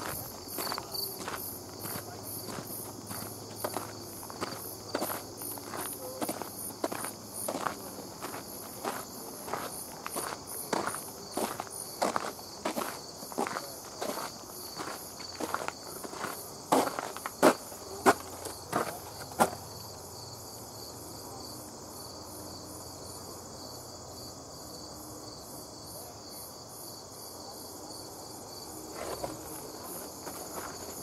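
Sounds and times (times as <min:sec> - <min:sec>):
footsteps on paved path: 0:00.0 - 0:19.7, 0:28.8 - 0:31.0
insects chirping: 0:00.0 - 0:31.0.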